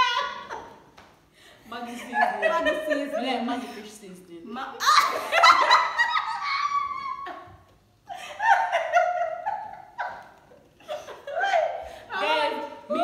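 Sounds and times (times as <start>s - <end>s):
women laughing: 1.8s - 3.9s, 4.8s - 12.4s.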